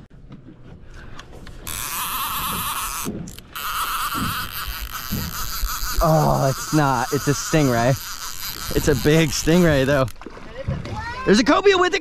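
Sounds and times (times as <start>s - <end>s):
fishing reel ratcheting buzz: 1.6s - 10.2s.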